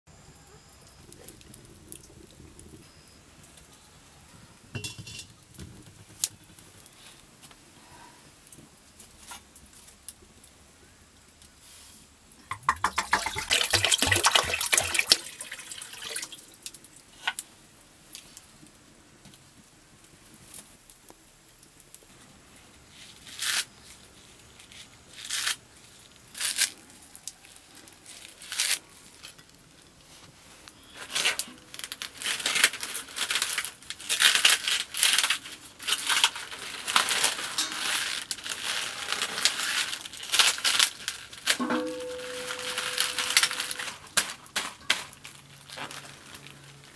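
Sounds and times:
liquid pouring into a wok: 12.5s - 16.5s
leafy greens rustling and tearing: 22.2s - 46.9s.

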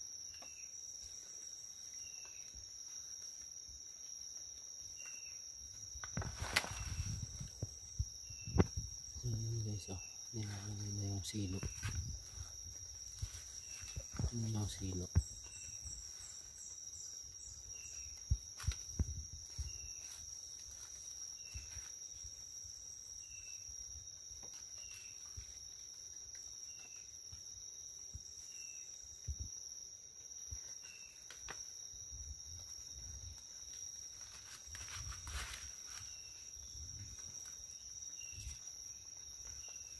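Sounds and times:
forest insects droning: 0.0s - 39.9s
short insect chirps: 0.0s - 39.9s
twigs snapping and knocking: 6.0s - 7.4s
dry leaves rustling: 6.2s - 7.6s, 10.5s - 16.7s, 33.6s - 36.4s.

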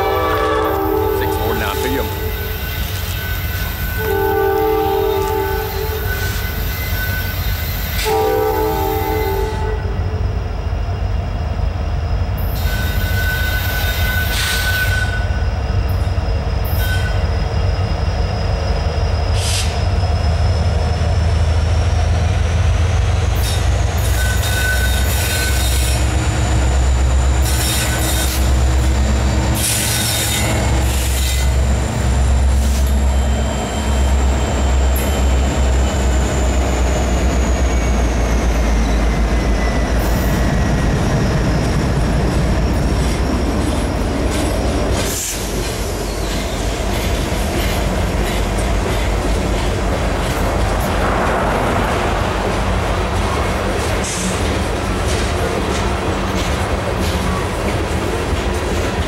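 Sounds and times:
train horn: 0.0s - 7.3s, 7.9s - 10.2s
diesel locomotive engine rumble: 0.0s - 59.0s
wheels squealing against rails: 0.0s - 59.0s.

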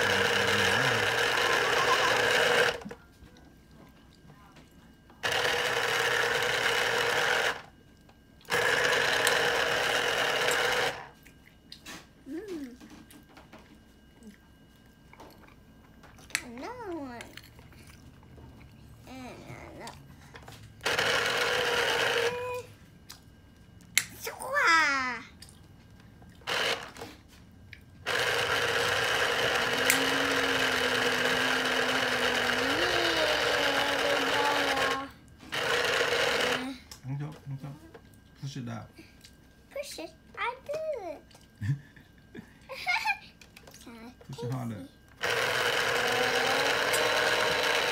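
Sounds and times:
citrus juicer motor spinning: 0.0s - 3.0s, 5.2s - 7.8s, 8.4s - 11.2s, 18.4s - 22.7s, 26.4s - 27.2s, 28.0s - 37.6s, 43.5s - 47.9s.

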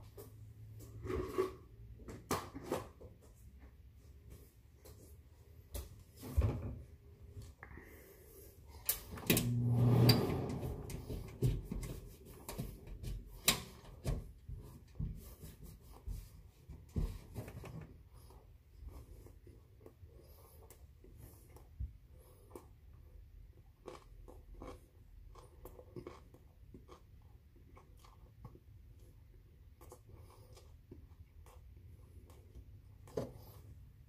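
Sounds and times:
person chewing crunchy food: 22.3s - 33.0s.

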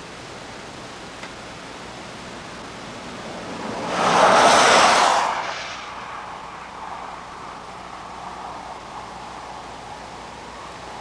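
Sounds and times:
vehicle passing by: 2.4s - 11.0s.

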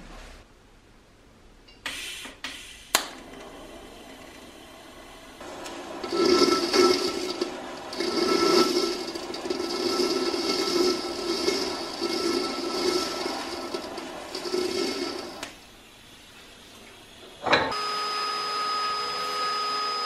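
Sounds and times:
welding arc hissing: 1.9s - 17.2s.

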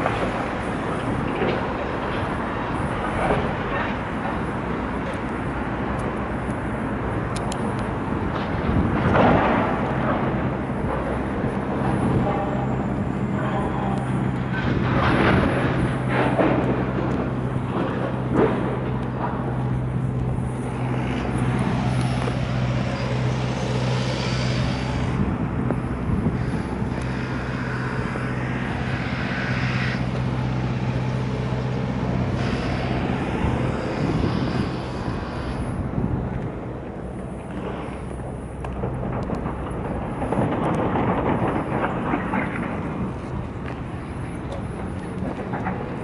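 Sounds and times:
engine hum: 0.0s - 46.0s
noisy hiss: 9.6s - 46.0s.

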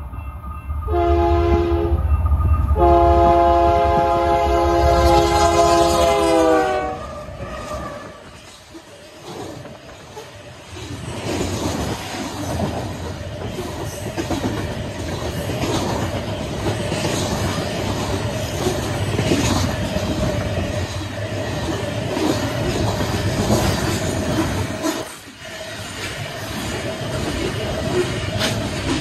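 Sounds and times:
train wheels rumbling on rails: 0.0s - 29.0s.

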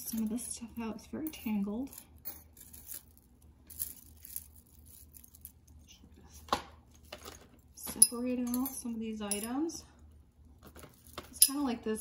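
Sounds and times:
metal jewelry clinking: 0.0s - 5.9s, 7.6s - 9.8s, 10.8s - 11.7s.

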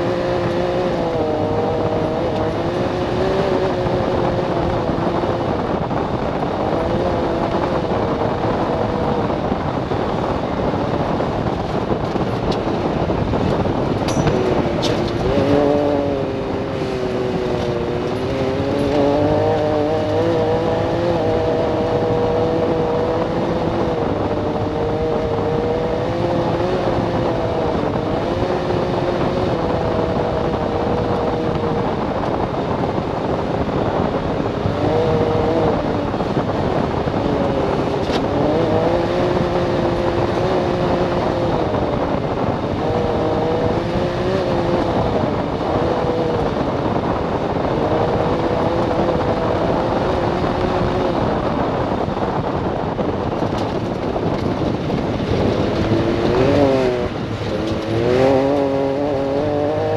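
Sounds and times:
engine running hard: 0.0s - 59.9s
road noise rushing: 0.0s - 59.9s.

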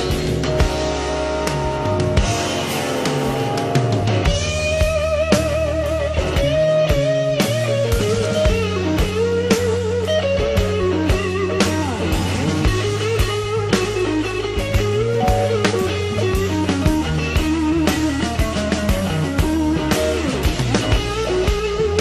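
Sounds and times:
bass: 0.0s - 22.0s
blues-rock electric guitar lead: 0.0s - 22.0s
steady drum beat: 15.2s - 16.7s.

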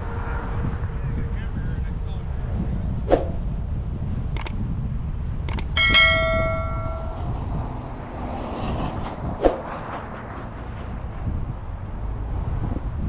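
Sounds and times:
car road and wind rumble: 0.0s - 13.0s
button clicks: 5.5s - 7.2s
notification bell ding: 5.5s - 7.4s.

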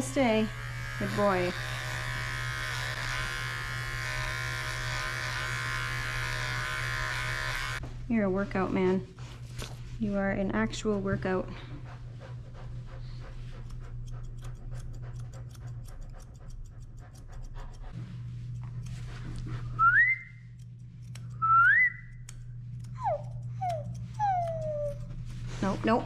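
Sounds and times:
low hum: 7.8s - 26.0s
scissors snipping: 13.6s - 17.9s, 20.5s - 26.0s
dog whining: 22.9s - 25.2s.

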